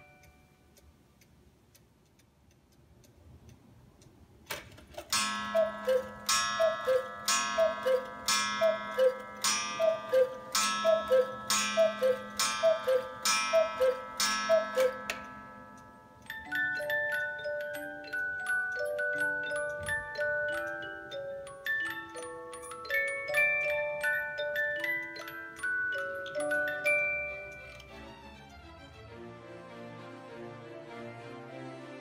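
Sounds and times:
clock ticking: 0.0s - 4.3s, 5.0s - 28.0s
clock mechanism click: 0.1s - 16.4s
cuckoo calls: 5.5s - 15.2s.

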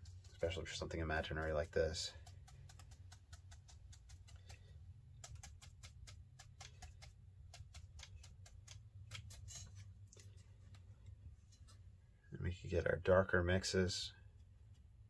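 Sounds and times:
brush tapping on paper: 0.0s - 9.4s.

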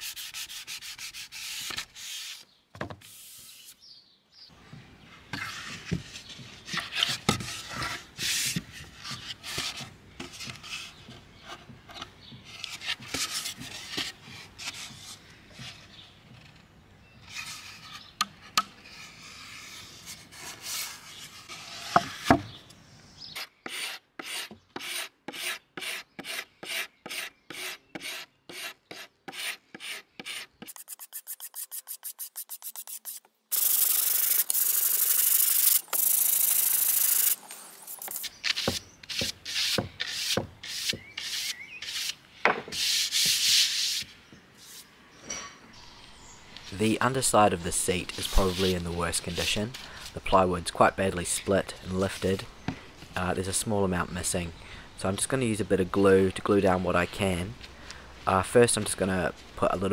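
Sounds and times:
hand sanding wood: 23.7s - 37.4s, 47.8s - 49.5s.

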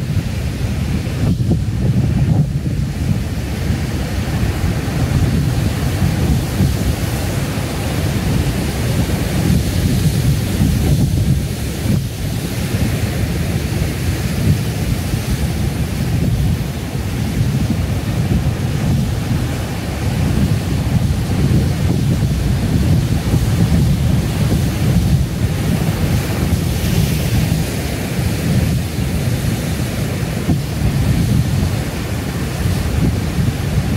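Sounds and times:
ocean surf roaring on rocks: 0.0s - 33.9s.

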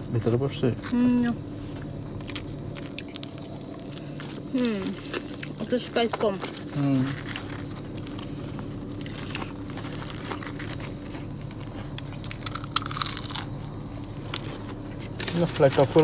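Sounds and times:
steady low hum: 0.0s - 16.0s
crunching and chewing fried chicken: 0.1s - 16.0s.

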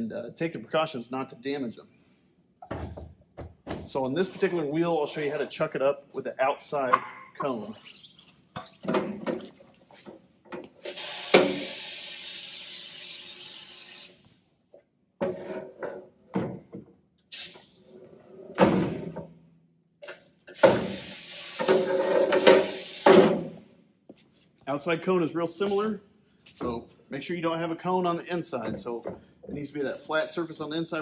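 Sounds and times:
wheel lift hissing: 10.9s - 14.2s, 20.5s - 23.2s.

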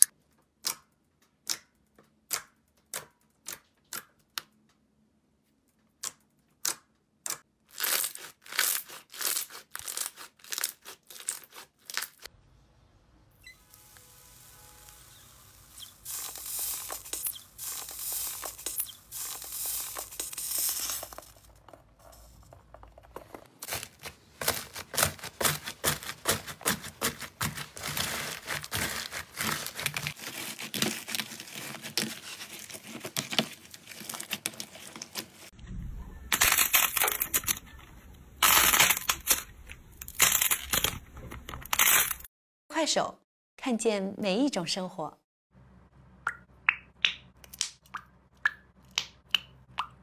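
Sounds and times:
crunchy slime crackles: 7.6s - 12.3s, 23.6s - 35.5s
slime squishing and tearing: 7.7s - 12.3s, 23.6s - 35.2s.

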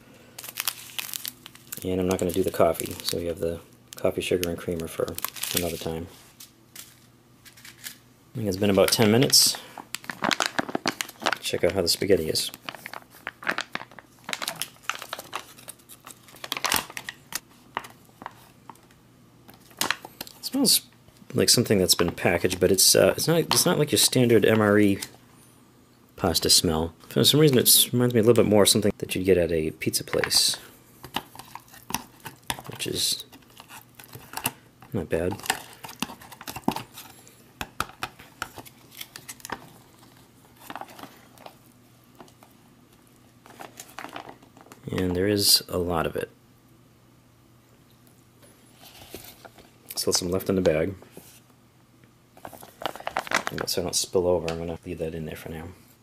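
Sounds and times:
foil pouch crinkling: 0.4s - 3.3s, 3.9s - 6.0s, 8.6s - 18.4s, 37.8s - 42.5s, 43.4s - 44.8s, 52.4s - 53.8s
plastic spoon squishing through food: 31.0s - 42.5s.

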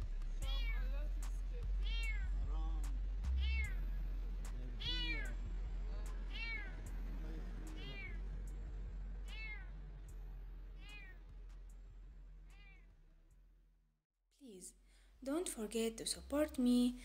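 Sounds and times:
cat meowing: 0.5s - 0.8s, 1.8s - 2.3s, 3.4s - 3.8s, 4.8s - 5.4s, 6.3s - 6.9s, 7.7s - 8.2s, 9.3s - 9.8s, 10.8s - 11.2s, 12.5s - 12.9s.

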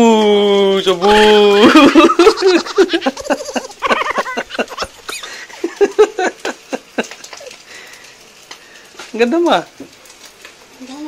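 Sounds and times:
person laughing: 1.5s - 7.6s.

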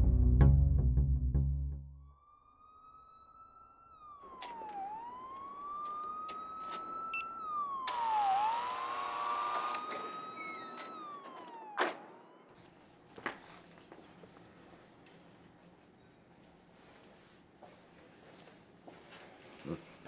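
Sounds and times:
police siren wailing: 2.1s - 12.7s.

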